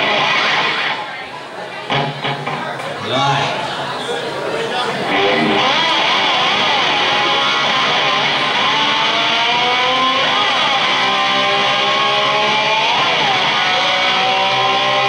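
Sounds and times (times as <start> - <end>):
live rock band playing: 0.0 - 1.0, 1.8 - 2.8, 5.0 - 14.8
electric guitar pitch slides: 0.0 - 1.2, 5.0 - 15.0.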